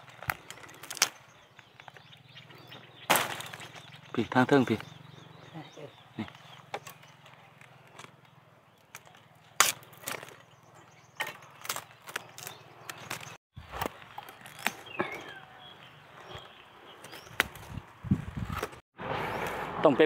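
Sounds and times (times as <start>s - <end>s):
dry bamboo snapping and crackling: 0.0s - 2.2s, 3.0s - 3.9s, 6.2s - 15.5s.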